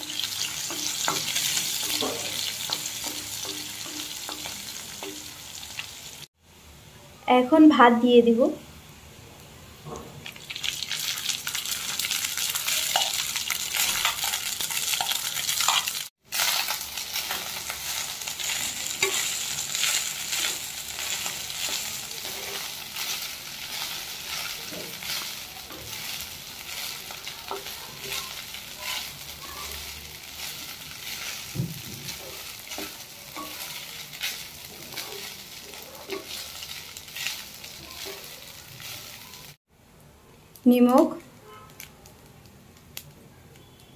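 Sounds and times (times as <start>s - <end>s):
rice sizzling in hot fat: 0.0s - 6.6s, 8.7s - 39.7s
wooden spatula scraping a pan: 0.2s - 5.2s, 16.4s - 39.2s.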